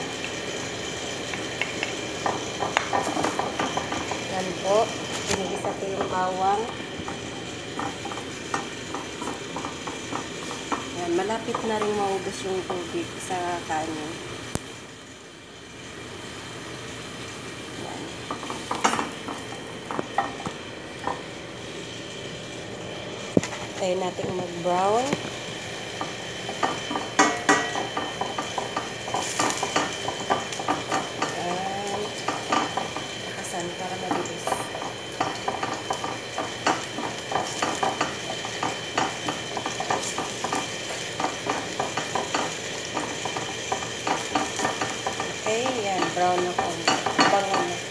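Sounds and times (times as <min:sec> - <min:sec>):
garlic sizzling in oil: 0:00.0 - 0:47.9
wooden spatula knocking on pot: 0:05.6 - 0:12.0, 0:26.0 - 0:33.2, 0:34.0 - 0:47.8.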